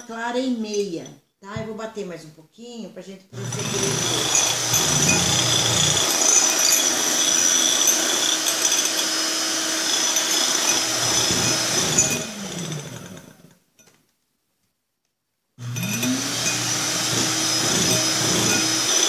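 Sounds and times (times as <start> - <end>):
electric hand mixer running: 3.4 - 13.5, 15.6 - 19.0.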